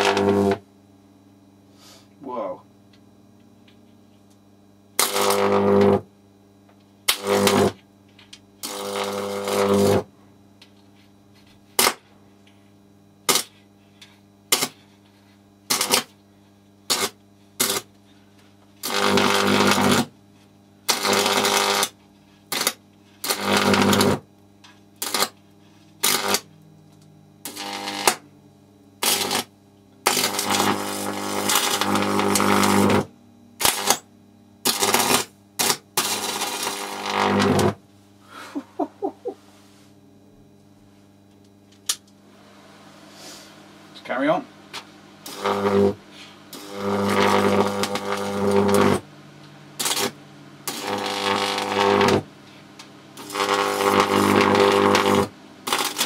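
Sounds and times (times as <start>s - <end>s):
high-voltage electrical arc crackling: 0.0s - 0.6s, 4.9s - 6.1s, 7.0s - 10.1s, 11.7s - 12.1s, 13.2s - 13.7s, 14.5s - 15.0s, 15.6s - 16.2s, 16.8s - 18.0s, 18.8s - 20.2s, 20.8s - 24.3s, 24.9s - 28.4s, 29.0s - 37.8s, 43.2s - 52.4s, 53.1s - 56.0s.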